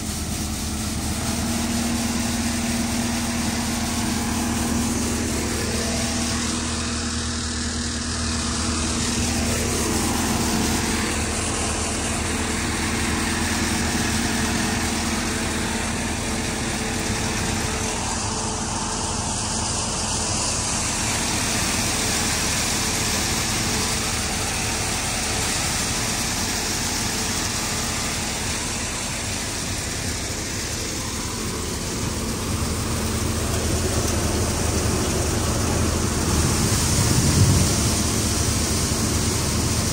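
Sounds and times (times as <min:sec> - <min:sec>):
tractor engine hum: 0:00.0 - 0:39.9
threshing machine rushing: 0:08.2 - 0:18.2, 0:33.5 - 0:39.9.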